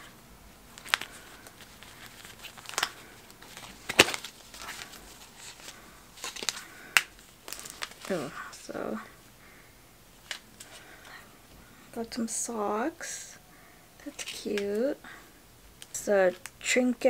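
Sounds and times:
paper packaging rustling: 0.0s - 8.7s
packaging clicks and snaps: 0.7s - 8.2s.

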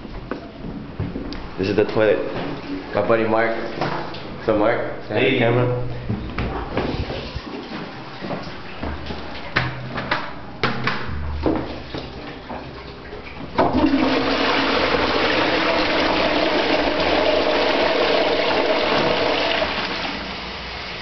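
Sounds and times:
toilet flushing: 11.6s - 21.0s
water rushing into toilet bowl: 11.7s - 21.0s.

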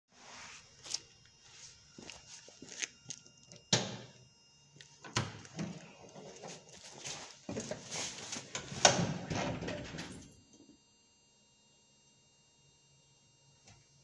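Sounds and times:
footsteps on concrete: 0.8s - 3.6s.

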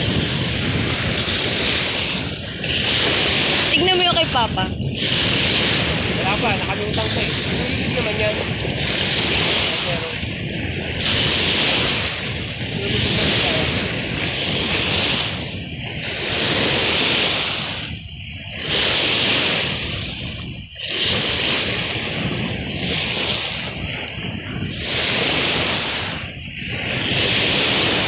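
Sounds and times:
lake waves splashing: 0.0s - 28.0s
wind on water: 0.0s - 28.0s.

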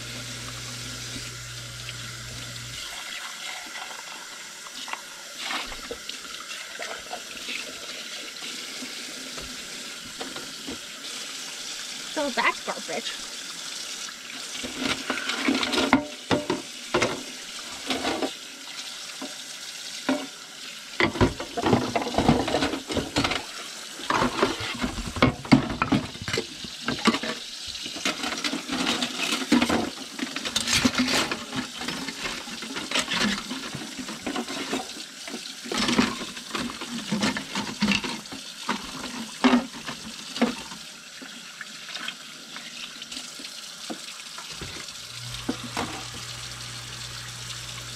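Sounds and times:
tap running into sink: 43.4s - 47.9s.

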